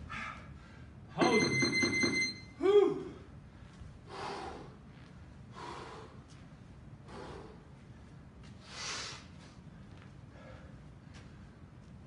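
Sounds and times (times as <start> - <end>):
man breathing hard: 0.0 - 1.0, 3.4 - 4.9, 5.5 - 6.4, 7.0 - 11.6.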